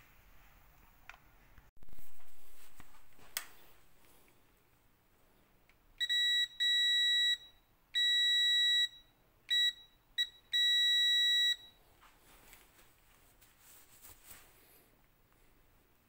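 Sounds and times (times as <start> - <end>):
multimeter continuity buzzer beeping: 6.0 - 11.8.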